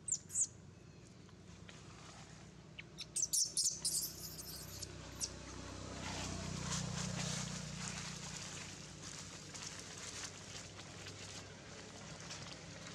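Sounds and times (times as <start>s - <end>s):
bird chirping and trilling: 0.0s - 0.5s, 2.8s - 5.3s
footsteps rustling dry leaves: 6.0s - 12.9s.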